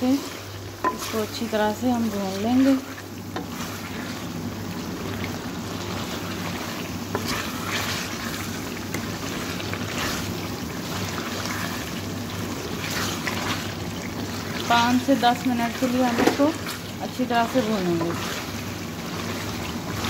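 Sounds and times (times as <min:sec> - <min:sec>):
meat sizzling in oil: 0:00.0 - 0:20.0
wooden spatula scraping and stirring: 0:00.0 - 0:20.0.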